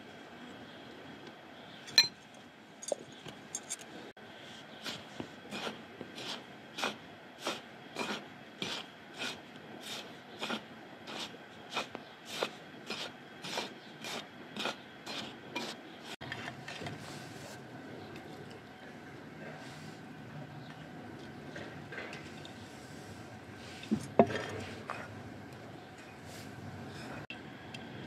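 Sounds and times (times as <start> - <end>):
hand rubbing dry flour mix: 4.8 - 16.2.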